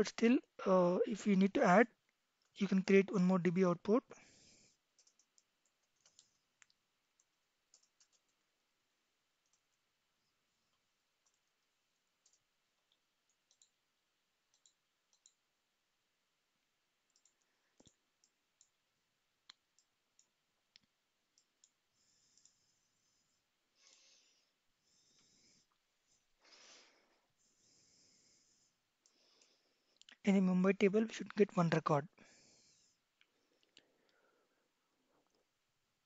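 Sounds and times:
faint computer mouse clicks: 5.0s - 8.4s, 12.2s - 13.8s, 14.5s - 15.4s, 17.1s - 18.8s, 19.4s - 22.6s.

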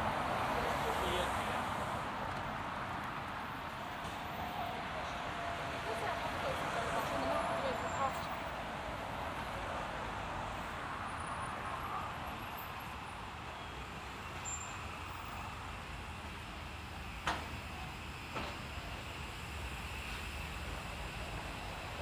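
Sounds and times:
traffic noise: 0.0s - 22.0s.

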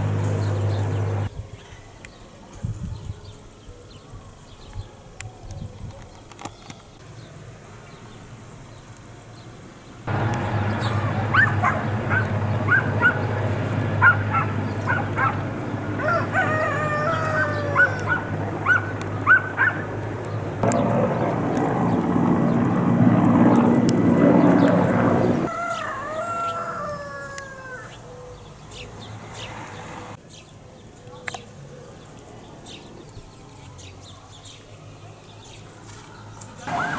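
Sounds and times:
dogs barking: 10.1s - 20.0s, 36.2s - 36.9s
dogs howling: 10.1s - 20.1s, 35.8s - 36.9s
steady low drone: 10.1s - 25.5s.

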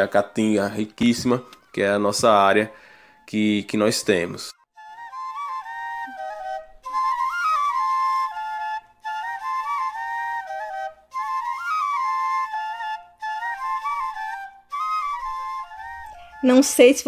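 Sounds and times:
two flutes playing a melody: 4.8s - 16.9s.

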